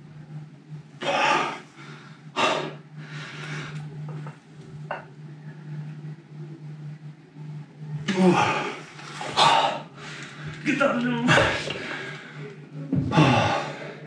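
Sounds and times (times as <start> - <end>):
steady low hum: 0.0 - 14.0
man breathing hard: 1.2 - 3.9, 11.6 - 14.0.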